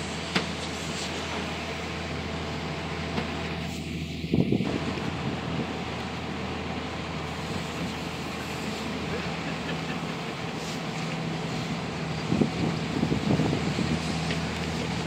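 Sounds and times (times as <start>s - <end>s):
boat engine humming: 0.0s - 15.0s
wind: 0.0s - 15.0s.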